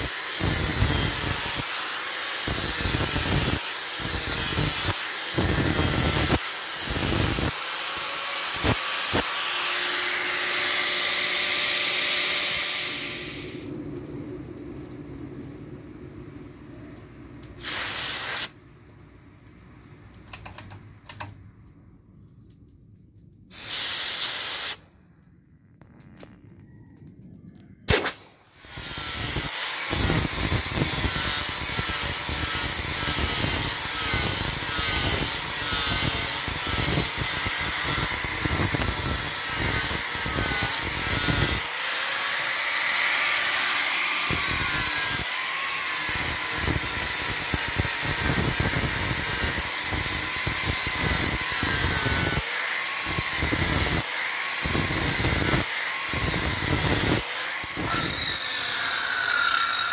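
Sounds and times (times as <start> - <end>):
angle grinder grinding steel: 0.0 - 13.6, 27.9 - 59.9.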